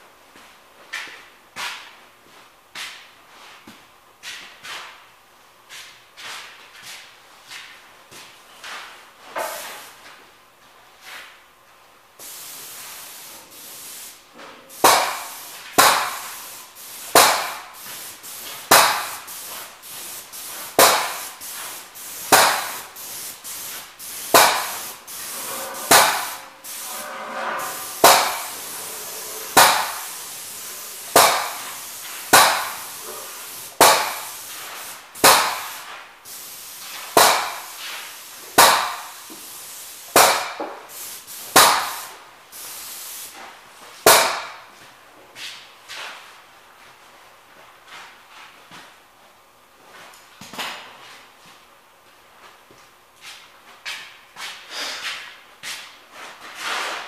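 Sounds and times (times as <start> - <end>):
spray gun hissing: 12.2 - 43.4
loud sharp bang: 25.7 - 30.1.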